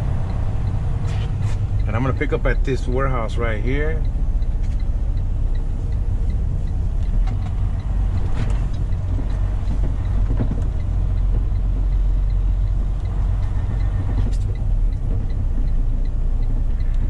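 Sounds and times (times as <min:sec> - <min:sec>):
truck engine rumbling: 0:00.0 - 0:17.0
turn signal ticking: 0:00.0 - 0:17.0.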